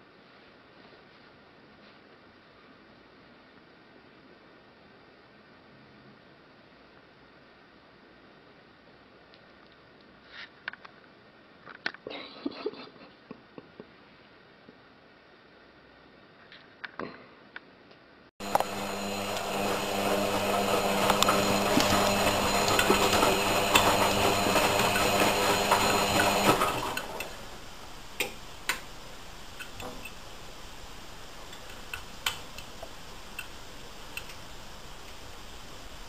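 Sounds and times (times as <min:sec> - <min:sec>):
washing machine running: 0:18.4 - 0:36.0.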